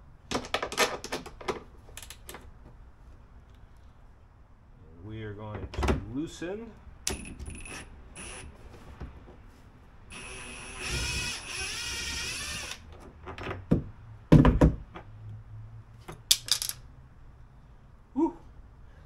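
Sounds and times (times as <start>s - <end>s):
cordless drill whining: 7.5s - 8.5s, 10.1s - 12.9s
hard knocks on plastic: 13.7s - 14.9s.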